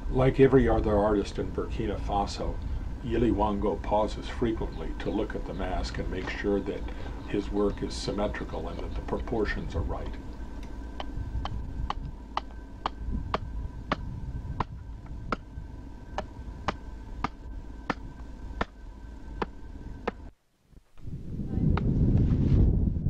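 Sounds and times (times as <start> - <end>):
adze chopping wood: 16.1 - 18.8.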